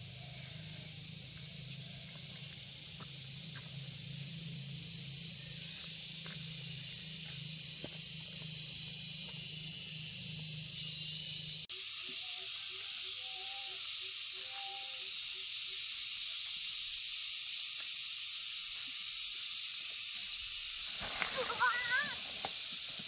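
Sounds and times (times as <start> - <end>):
steady high-pitched hiss: 0.0 - 23.0.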